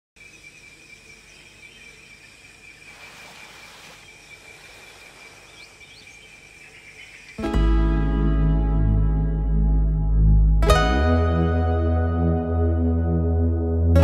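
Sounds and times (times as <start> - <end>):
soft hiss: 2.5 - 7.2.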